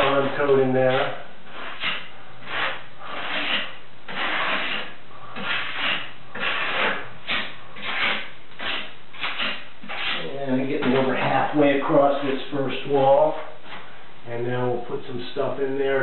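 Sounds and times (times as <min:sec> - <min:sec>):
trowel scraping grout on wall: 0:00.0 - 0:11.5.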